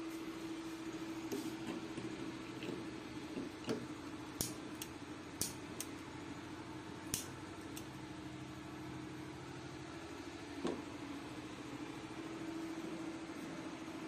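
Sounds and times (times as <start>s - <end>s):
steady low hum: 0.0s - 14.0s
lighter clicking: 7.1s - 7.9s.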